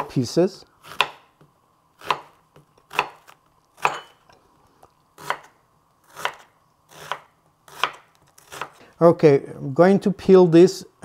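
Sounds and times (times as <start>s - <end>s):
knife chopping onion on wood: 0.8s - 4.1s, 5.2s - 8.8s.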